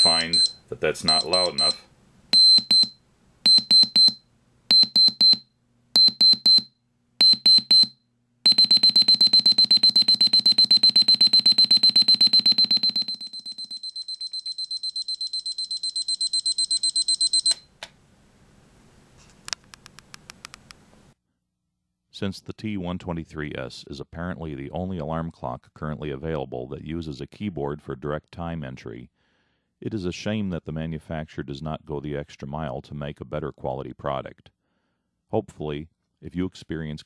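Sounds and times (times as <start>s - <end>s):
alarm clock beeping: 0.0s - 1.8s, 2.4s - 5.4s, 6.0s - 17.6s
faint clicks: 19.4s - 20.8s.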